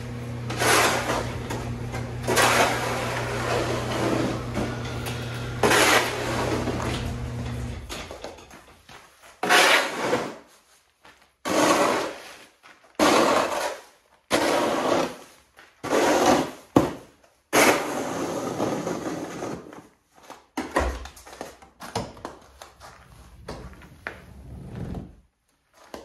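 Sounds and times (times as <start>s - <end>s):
snow shovel scraping: 0.4s - 7.6s, 9.4s - 10.6s, 11.4s - 16.7s, 17.6s - 19.8s.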